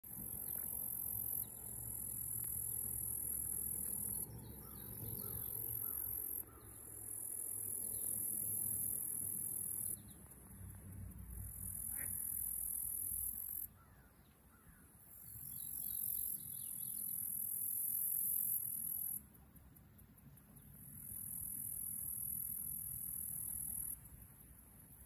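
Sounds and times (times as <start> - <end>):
insects trilling: 0.1 - 19.2
faint bird chirps: 4.1 - 7.0.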